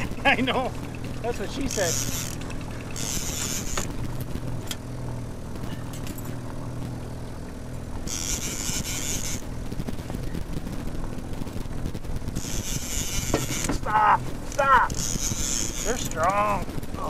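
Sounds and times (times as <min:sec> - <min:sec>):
outboard motor running: 0:00.0 - 0:17.0
wind and water noise: 0:00.0 - 0:17.0.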